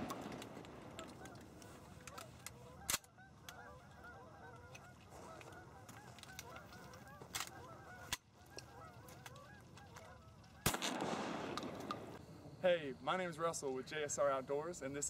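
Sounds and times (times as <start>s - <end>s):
geese honking: 0.8s - 10.8s
loud sharp crack: 10.6s - 12.2s.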